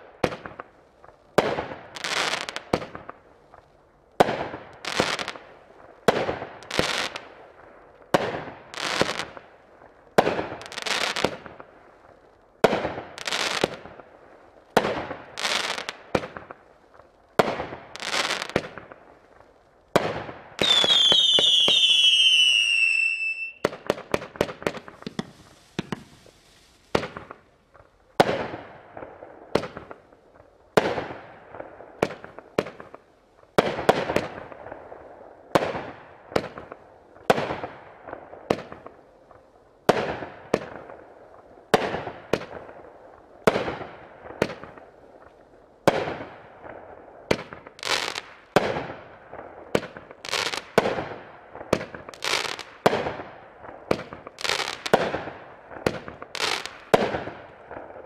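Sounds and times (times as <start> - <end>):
fireworks firing sharp reports: 19.9 - 27.5
firework whistles falling in pitch: 20.6 - 23.7.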